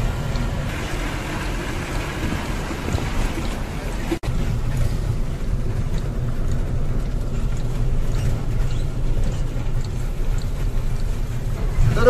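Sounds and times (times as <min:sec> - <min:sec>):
engine and road rumble: 0:00.0 - 0:12.0
faint light ticks: 0:05.7 - 0:11.7.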